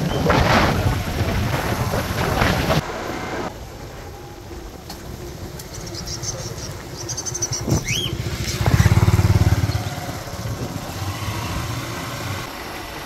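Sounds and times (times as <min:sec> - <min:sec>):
small motorcycle engine: 0:05.8 - 0:13.0.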